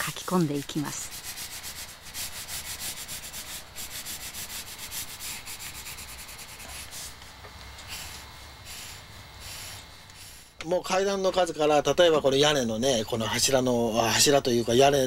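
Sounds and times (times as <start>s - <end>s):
pencil scratching on paper: 0.0s - 10.5s.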